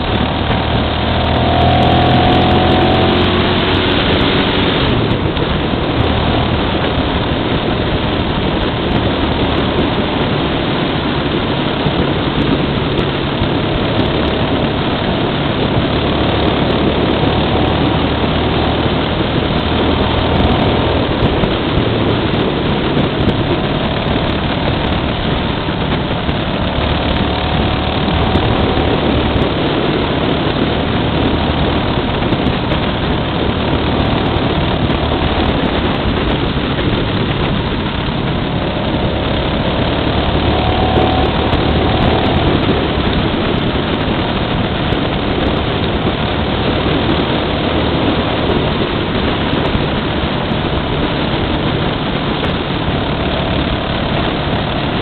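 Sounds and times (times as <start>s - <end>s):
motorcycle engine running: 0.0s - 55.0s
wind rushing over microphone: 0.0s - 55.0s.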